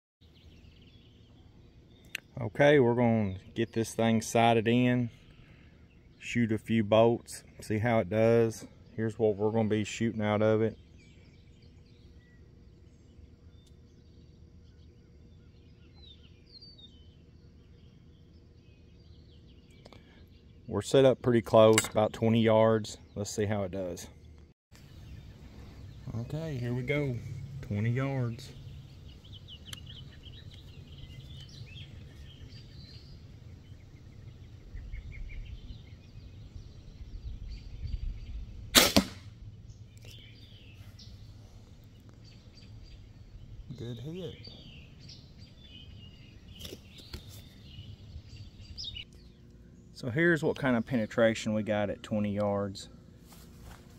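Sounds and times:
faint bird chirps: 0.2s - 7.7s, 8.6s - 38.6s, 39.4s - 52.1s
steady low rumble: 24.3s - 46.6s
bolt striking foam target: 38.8s - 39.3s.

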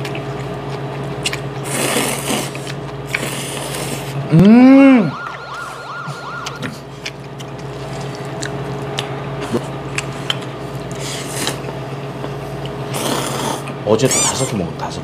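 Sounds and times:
noodles slurped: 0.0s - 4.4s, 12.8s - 14.4s
warning alarm sound effect: 4.8s - 6.8s.

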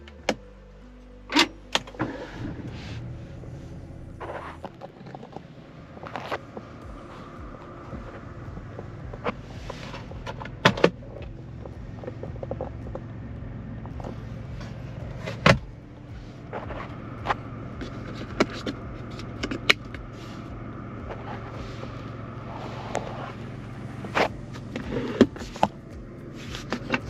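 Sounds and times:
car engine humming: 0.0s - 27.0s
sharp clicks and knocks: 16.5s - 20.2s.

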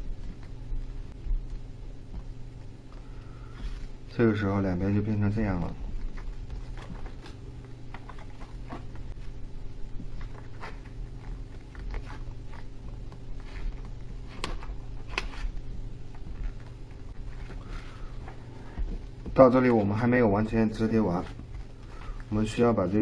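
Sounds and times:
steady low hum: 0.0s - 23.0s
paper crinkling and rustling: 5.8s - 23.0s.

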